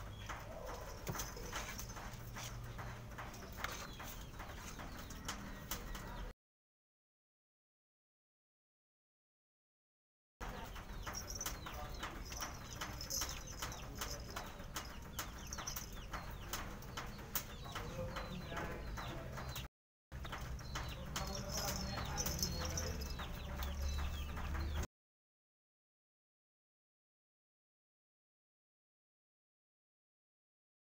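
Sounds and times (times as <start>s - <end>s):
collar bells jingling: 0.0s - 5.4s, 10.4s - 18.3s, 20.2s - 24.8s.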